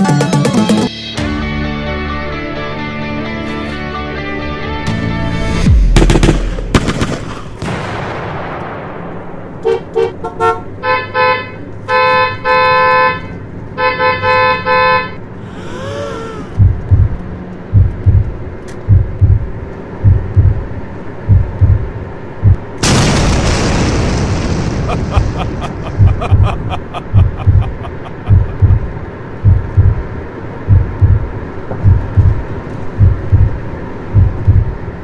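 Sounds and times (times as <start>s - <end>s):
car horn honking: 9.6s - 15.2s
deep loud thumps: 16.6s - 20.6s, 21.3s - 30.0s, 30.7s - 32.4s, 33.0s - 34.8s.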